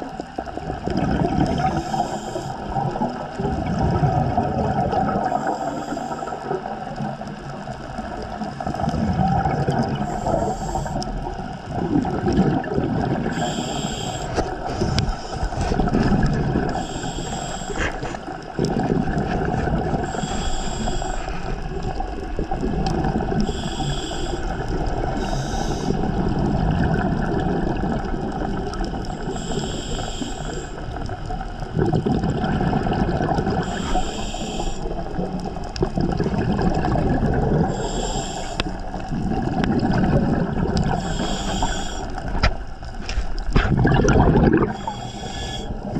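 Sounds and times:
exhaled bubbles gurgling: 0:00.0 - 0:45.9
regulator inhalation hiss: 0:01.6 - 0:02.7, 0:05.3 - 0:06.5, 0:09.9 - 0:11.1, 0:13.3 - 0:15.6, 0:16.7 - 0:18.4, 0:20.0 - 0:21.9, 0:23.4 - 0:26.2, 0:29.1 - 0:31.0, 0:33.6 - 0:35.2, 0:37.6 - 0:39.0, 0:40.9 - 0:42.4, 0:44.7 - 0:45.9.

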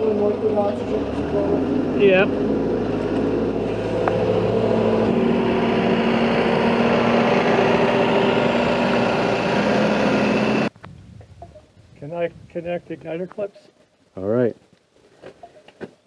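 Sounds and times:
diesel engine running: 0:00.0 - 0:10.7.

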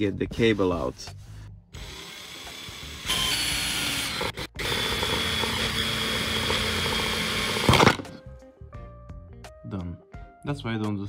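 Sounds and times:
power drill boring plastic: 0:01.8 - 0:08.1.

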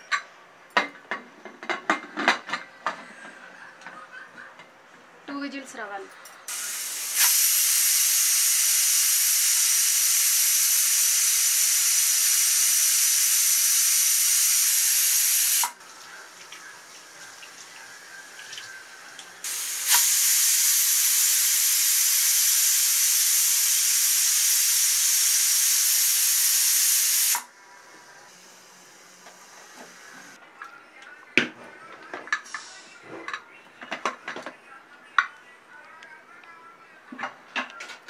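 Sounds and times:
pressure cooker valve hissing: 0:06.5 - 0:15.8, 0:19.4 - 0:27.5.

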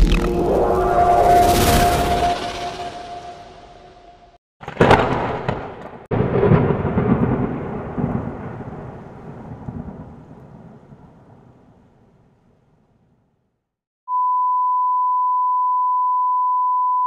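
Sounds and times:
thunder-like rumbling: 0:04.7 - 0:11.8.

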